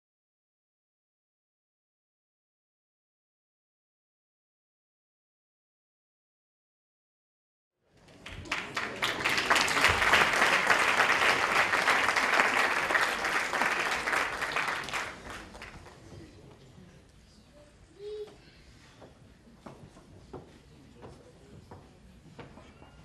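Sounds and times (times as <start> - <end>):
audience applauding: 7.9 - 16.1.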